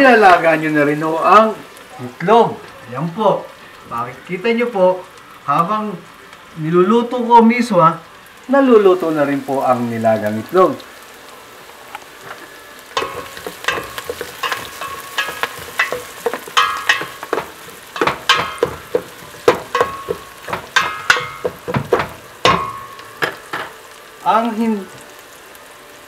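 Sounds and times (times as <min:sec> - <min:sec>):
food sizzling in oil: 0:00.0 - 0:26.0
spoon knocking and scraping pot: 0:13.0 - 0:23.8.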